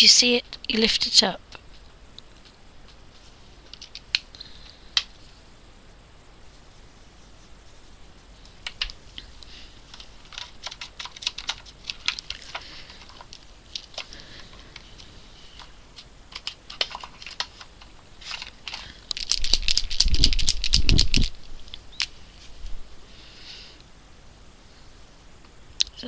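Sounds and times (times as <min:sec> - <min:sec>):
marker pens clicking and rattling: 0:03.7 - 0:04.3, 0:08.6 - 0:22.1.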